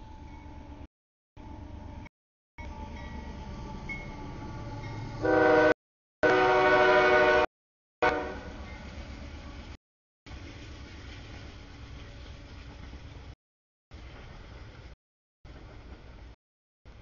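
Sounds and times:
low rumble of train: 0.0 - 17.0
locomotive air horn blasts: 5.2 - 8.6.

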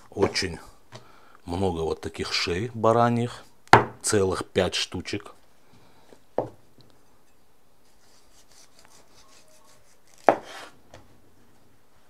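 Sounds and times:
knife scraping on cutting board: 7.0 - 10.8.

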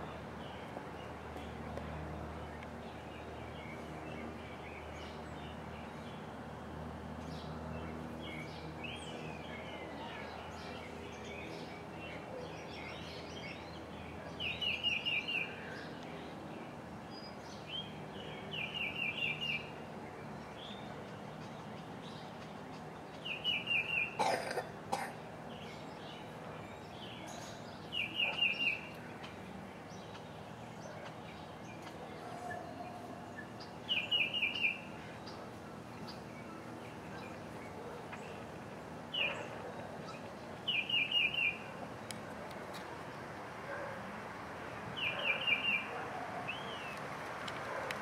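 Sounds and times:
bird chirping: 8.2 - 16.1, 17.1 - 24.3, 25.5 - 38.5, 39.1 - 42.2, 45.0 - 47.0.

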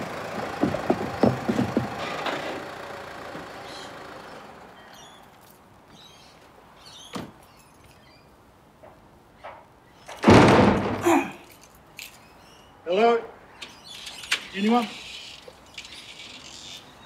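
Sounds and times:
vehicle engine dying: 0.0 - 5.3
loud short thump: 10.2 - 11.3.

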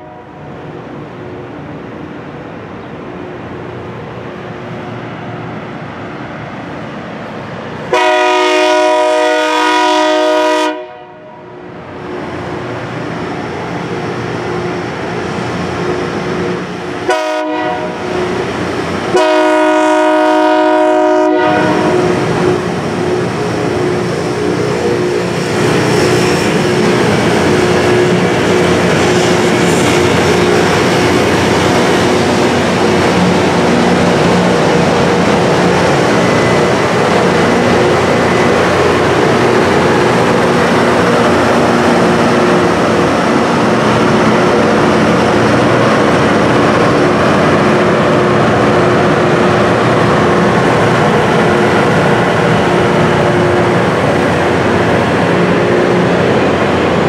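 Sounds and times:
train engines and wheels: 0.0 - 57.0
locomotive horn blasts: 7.9 - 11.4, 17.0 - 18.1, 19.1 - 22.2.

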